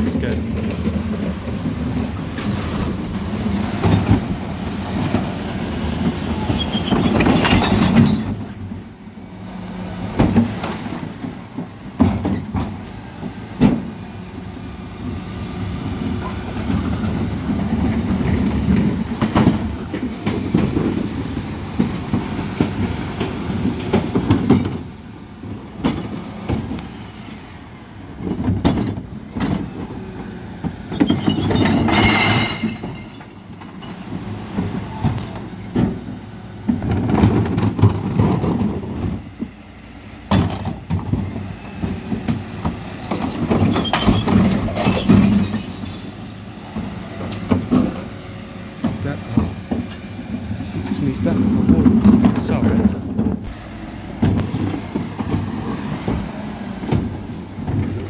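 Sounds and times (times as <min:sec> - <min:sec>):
truck engine and hydraulics running: 0:00.0 - 0:58.0
metallic clanks and rattles: 0:30.6 - 0:36.1.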